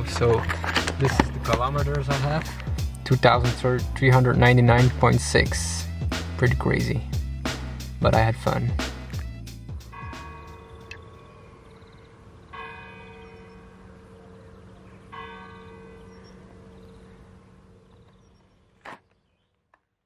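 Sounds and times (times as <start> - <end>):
church bell tolling: 9.8 - 18.4.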